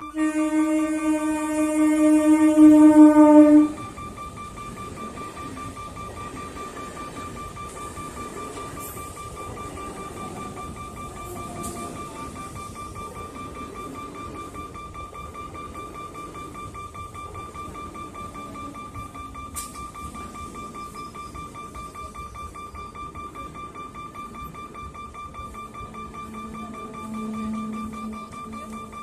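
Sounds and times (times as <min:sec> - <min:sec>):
level-crossing warning bell: 0:00.0 - 0:29.0
train wheels rumbling on rails: 0:00.0 - 0:29.0.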